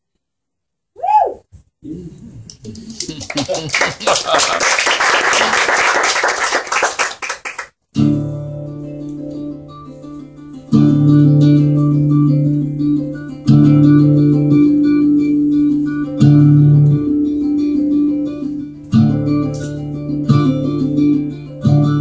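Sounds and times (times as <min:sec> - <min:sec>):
audience applauding: 0:02.7 - 0:07.7
acoustic guitar chords strummed: 0:07.9 - 0:22.0.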